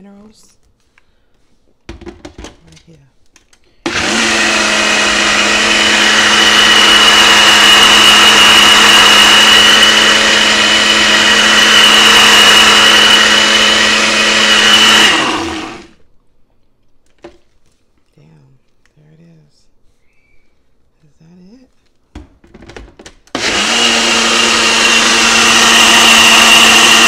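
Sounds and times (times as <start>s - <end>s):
blender motor whining: 3.8s - 16.0s, 23.3s - 27.0s.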